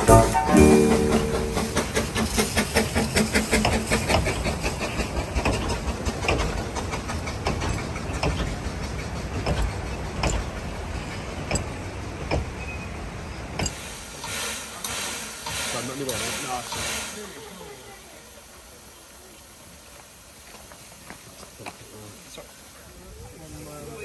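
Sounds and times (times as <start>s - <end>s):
steam locomotive exhaust beats: 0.0s - 22.7s
carriage wheels clicking over rail joints: 1.2s - 12.6s.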